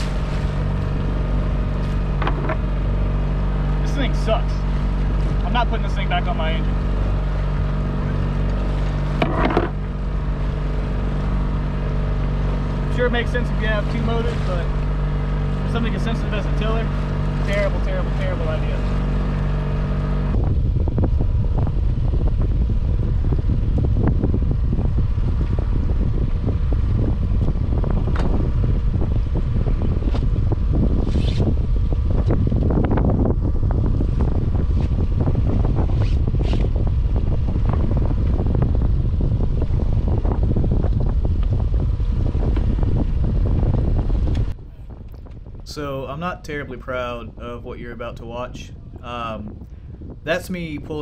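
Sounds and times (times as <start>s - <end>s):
steady motor hum: 0.0s - 48.1s
wind buffeting microphone: 0.0s - 51.0s.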